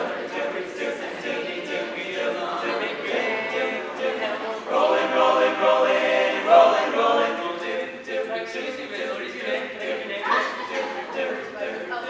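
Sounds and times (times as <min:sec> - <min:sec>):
male group singing a cappella: 0:00.0 - 0:12.0.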